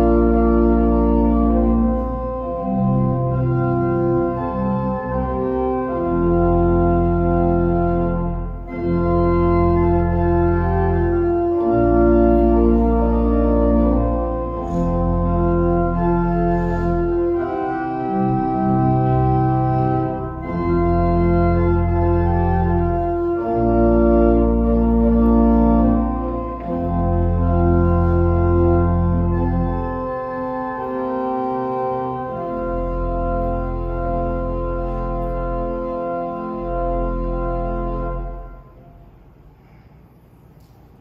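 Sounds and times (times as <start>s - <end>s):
organ playing hymn-like chords: 0.0s - 39.1s.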